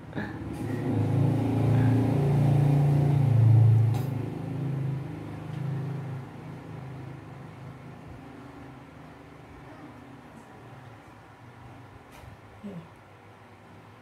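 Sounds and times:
vehicle engine passing by: 0.1s - 9.3s.

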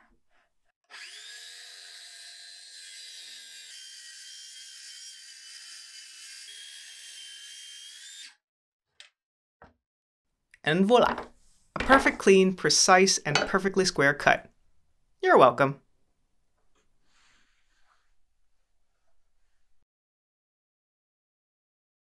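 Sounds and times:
circular saw cutting wood: 0.9s - 8.4s.

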